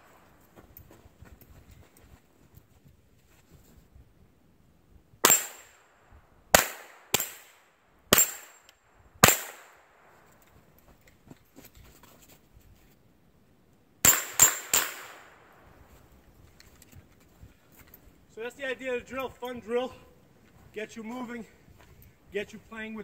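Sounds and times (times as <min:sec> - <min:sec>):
rifle shots: 0:05.2 - 0:05.9, 0:06.5 - 0:08.6, 0:09.2 - 0:10.2, 0:14.0 - 0:15.6.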